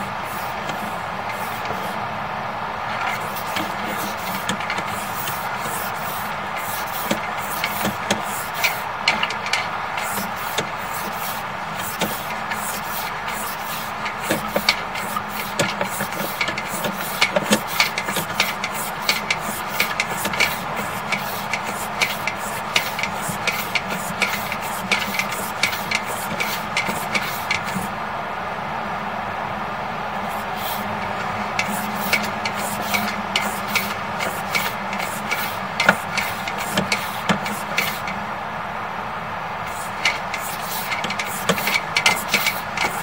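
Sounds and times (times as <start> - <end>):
cable clicking and rubbing: 0.0 - 2.0, 2.8 - 27.9, 30.2 - 38.2, 39.7 - 43.0
steady equipment hum: 0.0 - 43.0.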